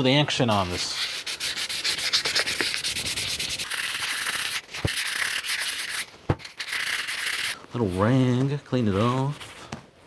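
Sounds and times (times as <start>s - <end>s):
sandpaper scrubbing metal: 0.4s - 7.6s.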